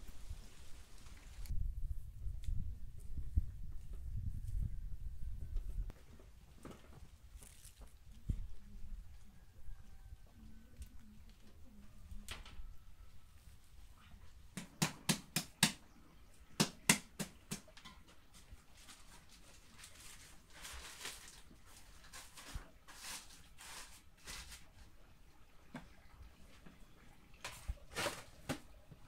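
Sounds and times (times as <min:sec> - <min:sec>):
cloth rustling over basin: 0:06.0 - 0:08.7, 0:18.1 - 0:25.0, 0:27.3 - 0:29.0.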